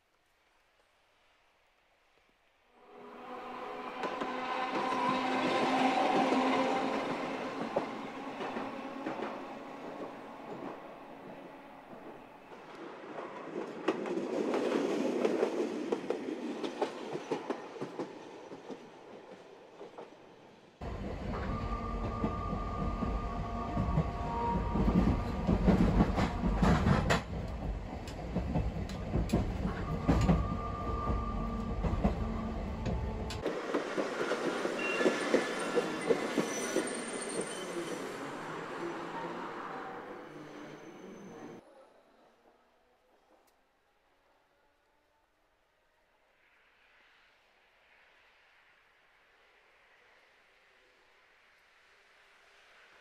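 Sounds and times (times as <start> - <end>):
tram going by: 2.8 - 43.3
deep rumble of tram: 20.8 - 41.6.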